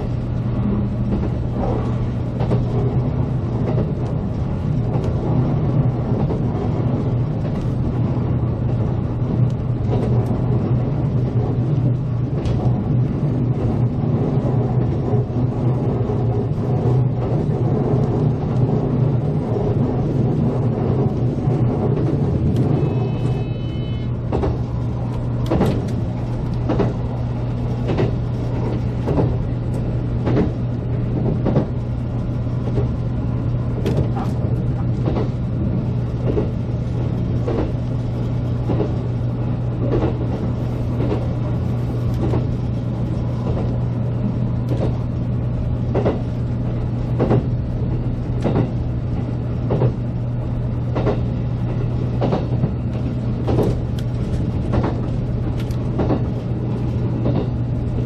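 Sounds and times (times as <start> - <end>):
train wheels clicking over rail joints: 0.0 - 12.8, 24.2 - 31.8, 33.7 - 39.2, 39.8 - 43.8, 44.7 - 45.1, 45.9 - 46.4, 47.1 - 50.0, 51.0 - 58.0
electric train running at speed: 0.0 - 58.0.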